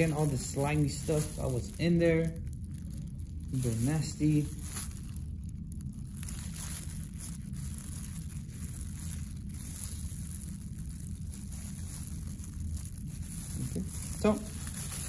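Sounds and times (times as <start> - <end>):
gloved hands rustling: 0.0 - 15.0
low rumble: 0.0 - 15.0.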